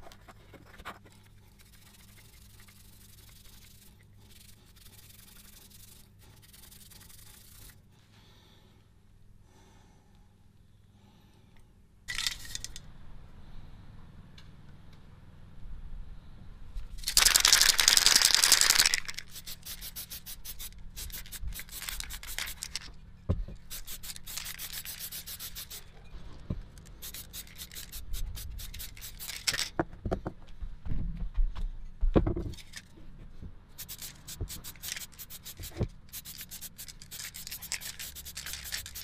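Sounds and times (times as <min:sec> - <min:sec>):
spray-paint can hissing: 0:01.6 - 0:07.8, 0:17.0 - 0:22.8, 0:23.7 - 0:25.9, 0:27.0 - 0:29.7, 0:33.8 - 0:39.0.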